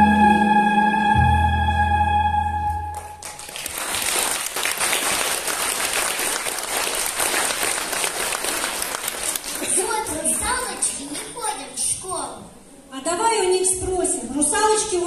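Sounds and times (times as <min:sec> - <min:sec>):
backing music: 0:00.0 - 0:03.2
audience clapping: 0:02.9 - 0:10.7.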